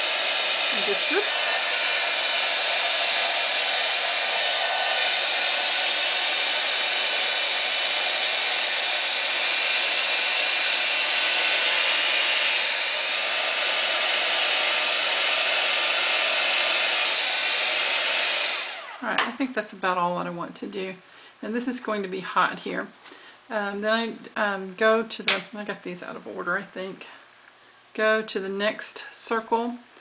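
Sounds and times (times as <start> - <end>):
heat tool fan whooshing: 0.0 - 19.2.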